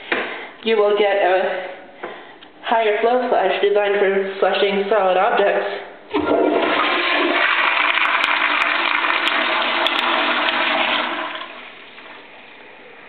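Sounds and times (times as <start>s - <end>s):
toilet flushing: 6.1s - 12.7s.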